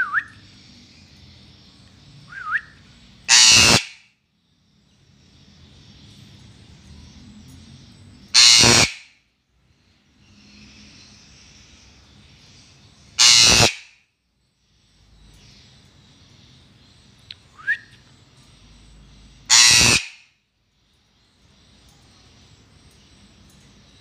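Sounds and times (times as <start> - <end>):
rising whistle: 0.0 - 0.4, 2.3 - 2.8, 17.6 - 18.0
parrot screeching: 3.3 - 4.0, 8.4 - 9.1, 13.2 - 13.9, 19.5 - 20.2.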